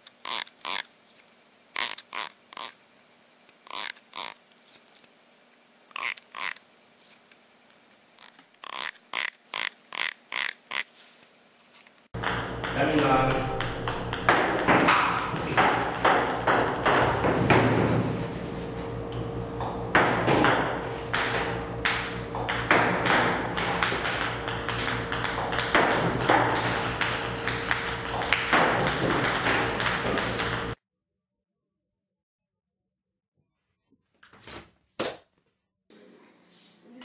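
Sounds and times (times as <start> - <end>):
table tennis balls clicking: 12.2 - 17.4, 21.1 - 30.8
steady hum: 12.2 - 30.8.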